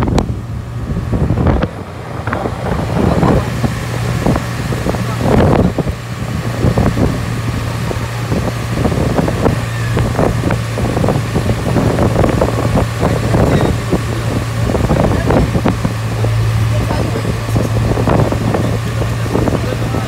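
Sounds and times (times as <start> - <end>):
vehicle engine humming: 0.0 - 20.0
wind buffeting microphone: 0.0 - 20.0.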